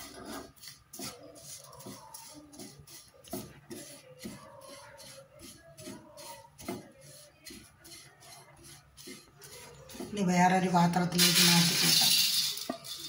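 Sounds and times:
spatula scraping oats in a pan: 0:00.0 - 0:10.9.

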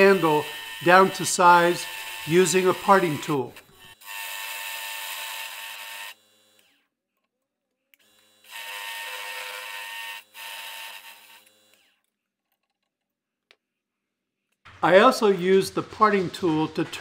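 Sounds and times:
tool scraping spinning wood: 0:00.0 - 0:04.1, 0:14.7 - 0:17.0
lathe motor hum: 0:00.0 - 0:06.7.

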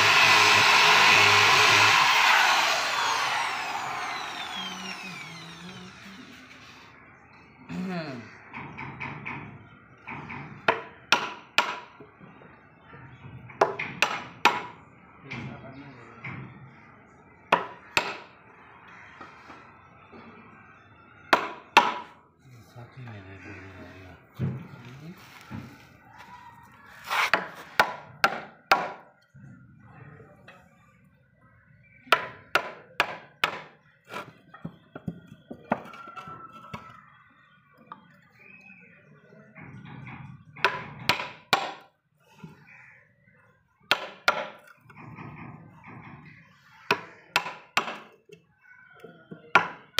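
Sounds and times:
hammer striking chisel into wood: 0:10.7 - 0:11.9, 0:13.6 - 0:14.8, 0:17.5 - 0:18.3, 0:21.3 - 0:22.1, 0:27.3 - 0:29.1, 0:32.1 - 0:33.8, 0:40.6 - 0:41.9, 0:43.9 - 0:44.7, 0:46.9 - 0:48.2, 0:49.5 - 0:49.9.

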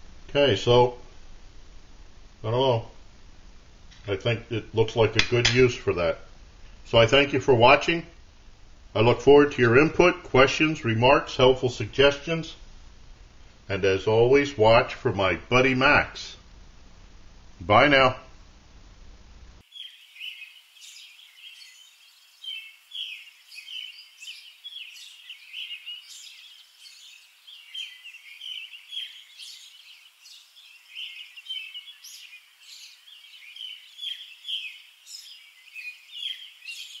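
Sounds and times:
small birds chirping: 0:19.6 - 0:37.0.

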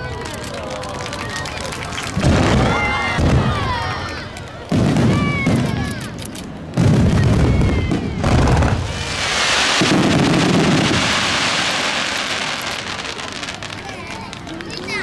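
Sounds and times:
firework crackling: 0:00.0 - 0:15.0
firework booms: 0:02.2 - 0:03.8, 0:04.7 - 0:06.0, 0:06.7 - 0:13.8.

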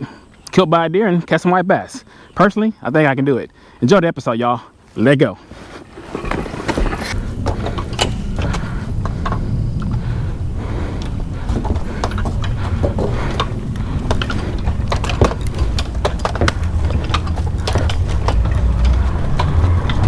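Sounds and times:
footsteps on wooden boardwalk: 0:05.4 - 0:20.0
low rumble: 0:06.0 - 0:20.0.

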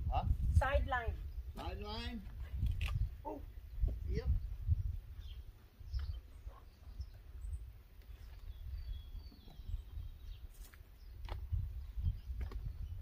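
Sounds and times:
wind rumble on microphone: 0:00.0 - 0:13.0
faint bird chirps: 0:02.9 - 0:11.2.

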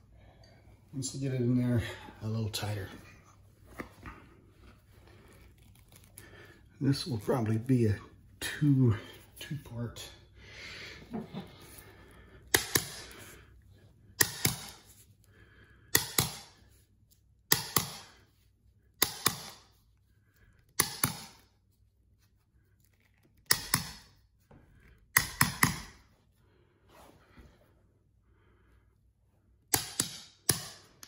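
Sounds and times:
hammer striking tool handle: 0:14.2 - 0:14.8, 0:25.2 - 0:25.9.

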